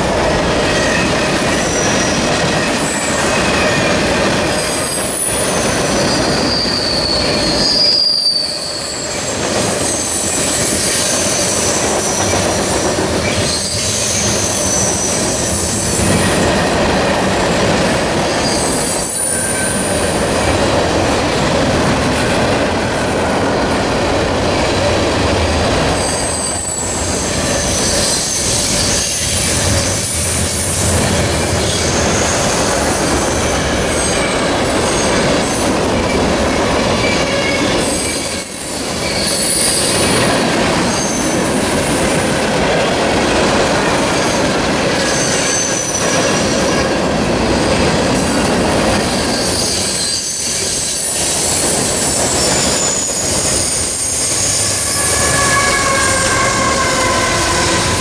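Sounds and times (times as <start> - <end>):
train wheels rumbling on rail: 0.0 - 58.0
wheel squeals: 4.7 - 12.5, 49.2 - 58.0.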